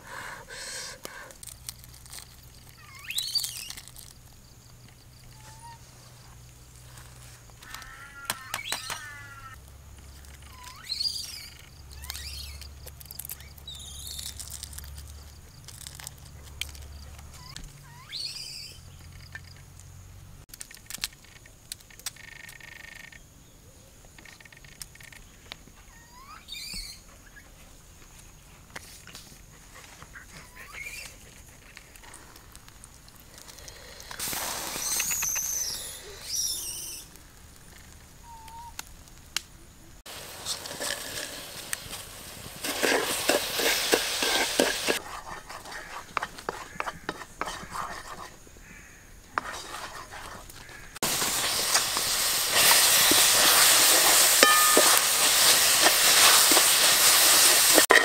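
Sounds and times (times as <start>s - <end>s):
wild birds chirping and trilling: 7.1s - 9.6s, 10.4s - 12.8s.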